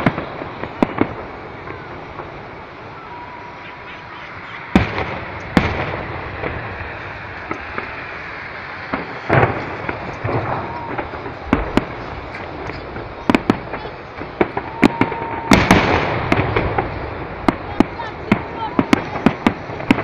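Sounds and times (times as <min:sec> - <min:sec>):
firework booms and cracks: 0:00.0 - 0:02.9, 0:04.4 - 0:20.0
rumbling background: 0:04.0 - 0:20.0.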